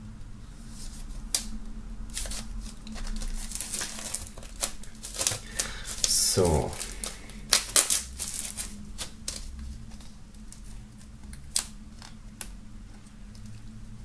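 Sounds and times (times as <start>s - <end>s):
plastic shrink-wrap crackling: 2.1s - 10.7s.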